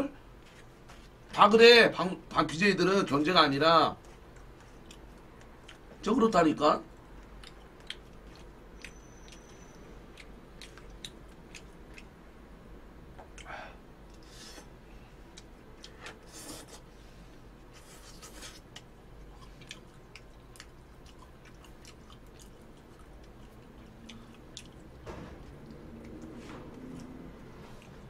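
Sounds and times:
person chewing: 0:04.0 - 0:05.9, 0:07.0 - 0:12.2, 0:15.3 - 0:16.9, 0:17.6 - 0:28.0.

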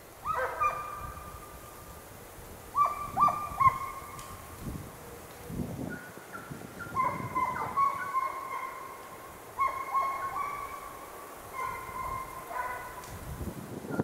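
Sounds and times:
hounds baying: 0:00.2 - 0:01.4, 0:02.7 - 0:04.4, 0:05.9 - 0:13.1.

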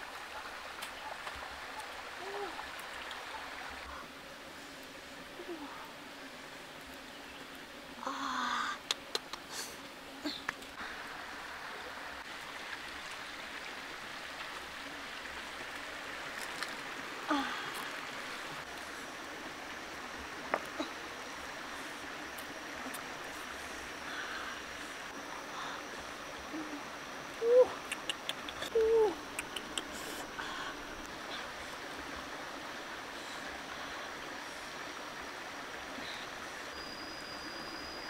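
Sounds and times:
rocky stream rushing: 0:10.5 - 0:37.0.

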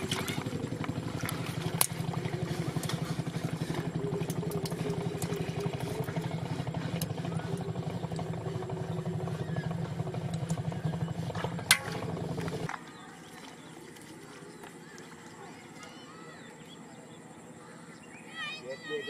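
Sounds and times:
small engine running: 0:00.0 - 0:13.8.

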